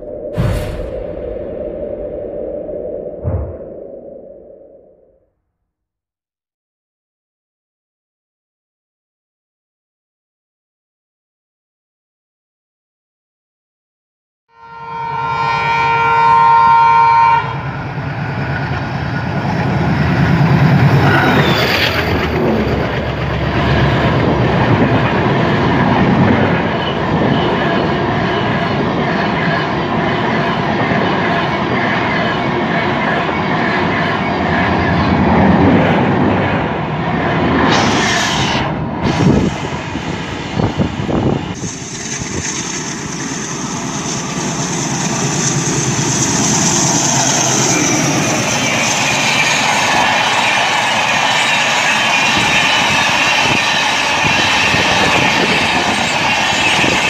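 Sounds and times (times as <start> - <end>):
locomotive horn: 14.5 - 17.8
train passing with loud rumble: 14.7 - 57.0.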